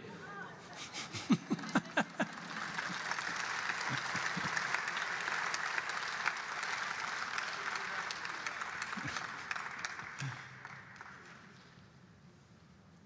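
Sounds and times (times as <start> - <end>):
audience laughing: 0.7 - 5.1
audience applause: 0.9 - 11.6.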